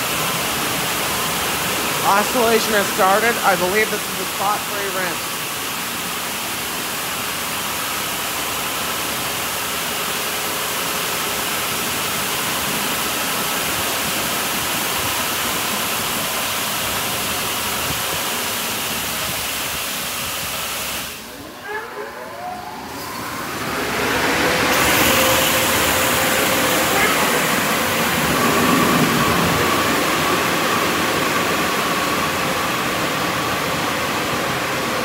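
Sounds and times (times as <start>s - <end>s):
water jets spraying a car: 0.0s - 21.6s, 22.9s - 35.0s
rising machine whine: 21.2s - 31.9s.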